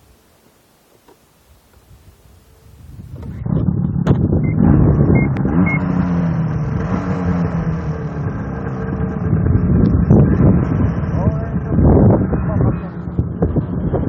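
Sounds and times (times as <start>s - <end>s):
snowmobile engine revving: 4.4s - 14.0s.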